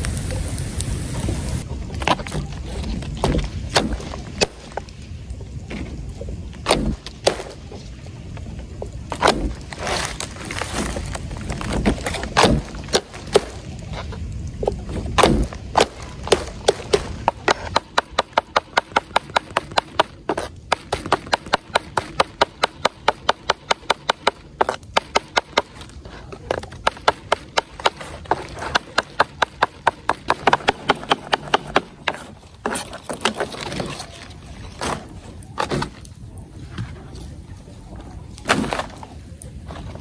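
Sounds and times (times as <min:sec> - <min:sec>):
chopping on a wooden board: 0:15.2 - 0:25.8.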